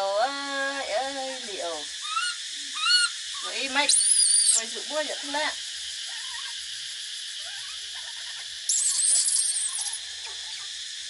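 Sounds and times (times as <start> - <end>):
steady high hiss: 0.0 - 11.0
baby monkey squeaking: 2.0 - 4.6, 6.0 - 6.6, 7.4 - 10.7.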